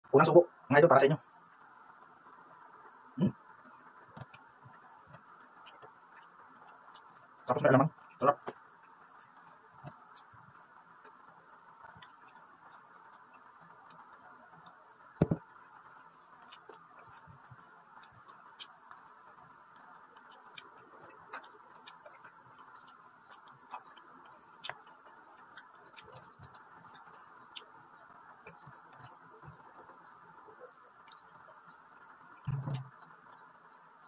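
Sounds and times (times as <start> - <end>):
faint steady hiss: 0.0 - 34.0
person chewing: 4.2 - 33.4.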